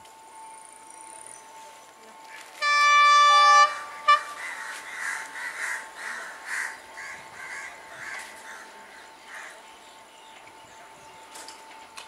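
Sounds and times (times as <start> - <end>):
faint steady tone: 0.0 - 12.0
harsh cawing calls: 3.8 - 9.6.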